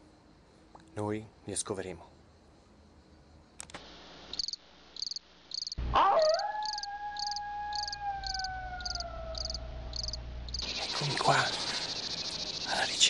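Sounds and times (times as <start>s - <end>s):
crickets chirping: 0.0s - 13.0s
long howl: 5.8s - 10.0s.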